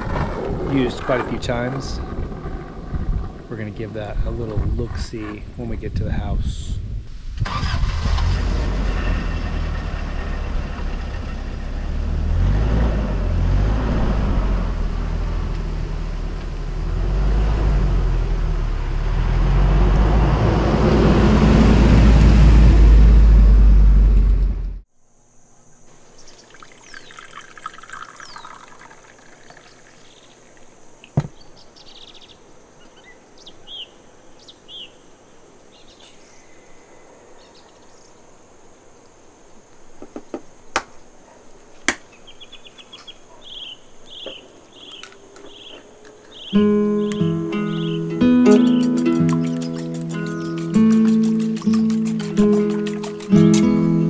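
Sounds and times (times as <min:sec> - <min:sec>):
crickets chirping: 0:00.0 - 0:08.1, 0:24.9 - 0:54.0
van engine driving: 0:07.4 - 0:24.9, 0:44.1 - 0:54.0
bird chirps: 0:25.6 - 0:39.3, 0:39.9 - 0:54.0
sharp clicks: 0:45.0 - 0:54.0.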